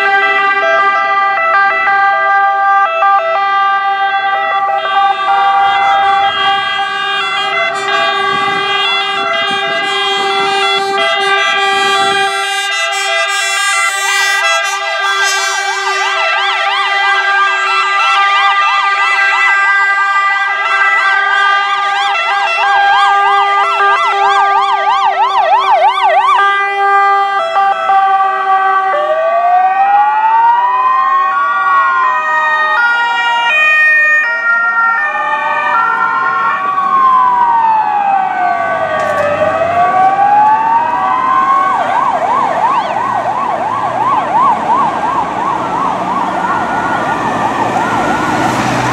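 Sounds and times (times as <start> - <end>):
ambulance sirens: 0.0 - 48.9
vehicle engine rumble: 36.1 - 48.9.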